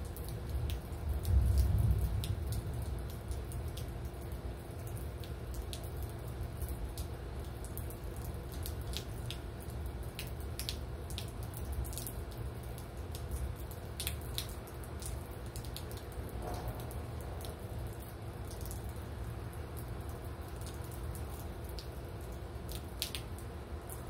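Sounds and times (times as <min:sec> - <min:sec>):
raindrops dripping: 0:00.0 - 0:24.0
steady low rumble: 0:00.5 - 0:03.2.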